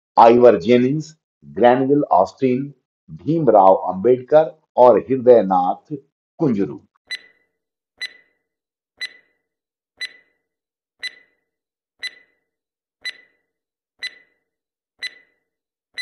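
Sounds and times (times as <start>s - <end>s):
timer ticking: 7.1s - 7.4s, 8.0s - 8.3s, 9.0s - 9.3s, 10.0s - 10.3s, 11.0s - 11.4s, 12.0s - 12.4s, 13.0s - 13.4s, 14.0s - 14.4s, 15.0s - 15.4s.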